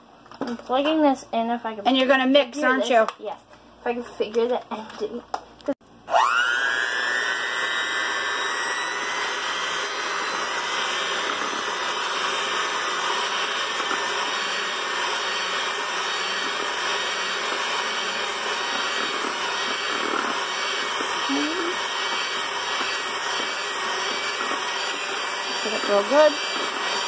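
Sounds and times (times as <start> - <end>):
electric hand mixer whining: 6.0 - 27.0.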